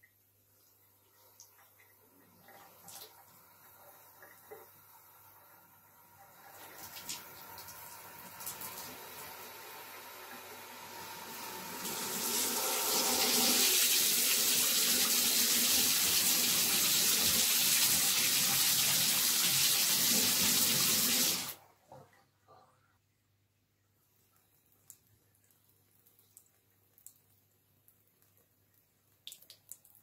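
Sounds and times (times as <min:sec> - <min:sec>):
faint water drips: 0:00.0 - 0:10.6, 0:23.6 - 0:30.0.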